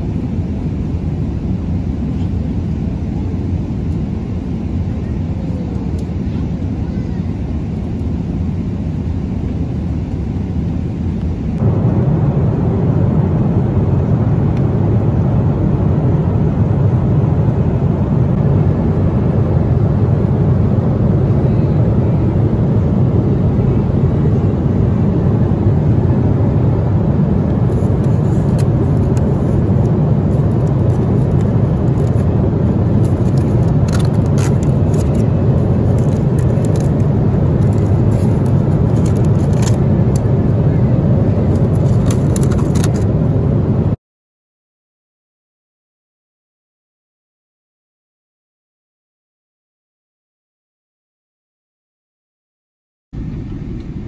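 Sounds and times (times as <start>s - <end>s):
airliner cabin drone: 0.0s - 44.0s, 53.2s - 54.0s
foil lid crinkling: 27.8s - 29.5s, 30.3s - 32.3s, 32.9s - 40.2s, 41.6s - 43.0s.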